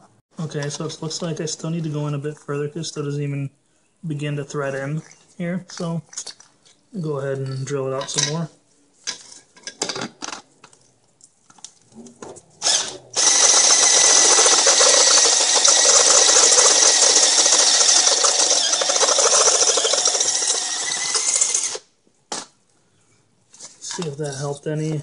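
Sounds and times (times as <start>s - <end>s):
cordless drill cutting metal: 12.6s - 21.9s.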